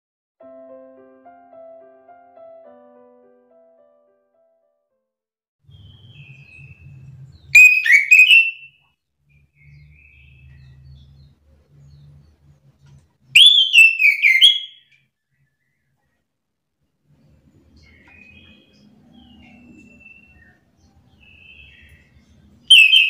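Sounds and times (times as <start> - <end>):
thrush whistled song: 5.7 - 8.8, 13.3 - 15.8, 21.2 - 23.0.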